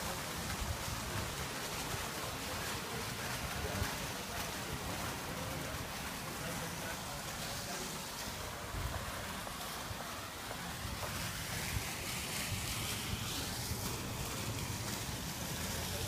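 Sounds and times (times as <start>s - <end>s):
street ambience hiss: 0.0s - 16.0s.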